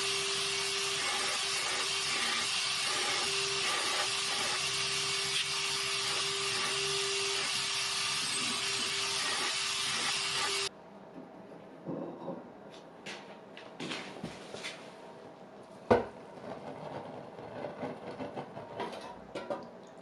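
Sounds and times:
belt grinder grinding metal: 0.0 - 10.7
grinder motor hum: 0.0 - 10.7.

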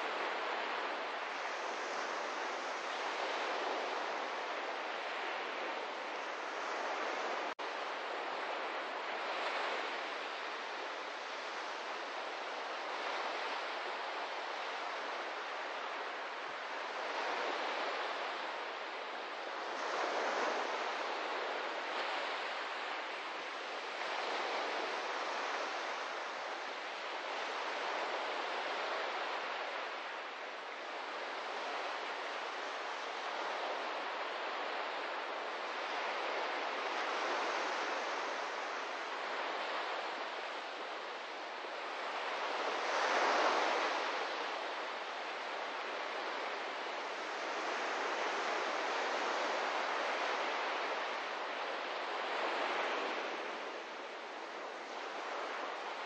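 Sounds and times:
waves washing onto beach: 0.0 - 56.0.

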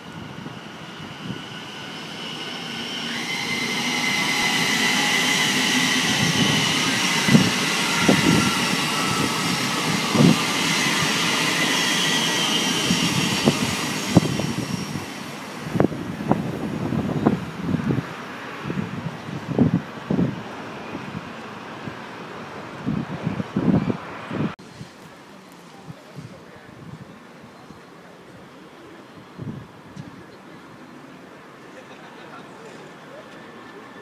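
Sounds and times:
train wheels rushing on rail: 0.0 - 24.6.

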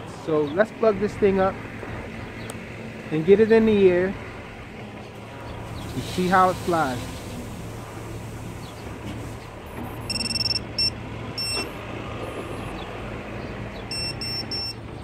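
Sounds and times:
high electronic beeps: 9.9 - 12.7, 13.9 - 14.8.

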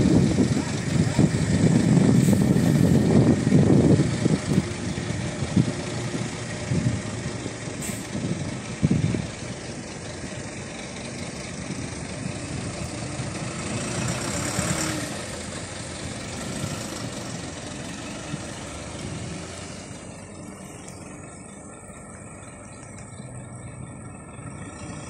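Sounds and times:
truck diesel engine idling: 0.0 - 25.0
hiss: 7.8 - 8.2.

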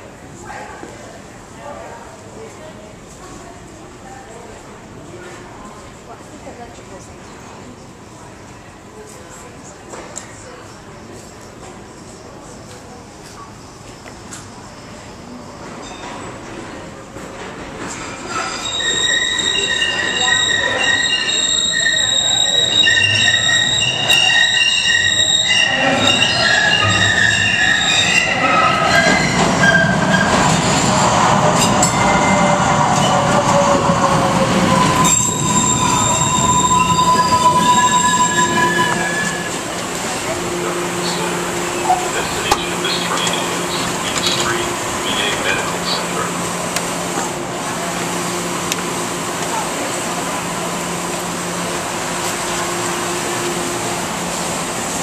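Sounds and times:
train rumble: 2.1 - 55.0
train wheels squealing on rails: 13.4 - 16.8, 17.8 - 39.8, 41.0 - 46.3
trolley car equipment hum and hiss: 38.8 - 55.0.

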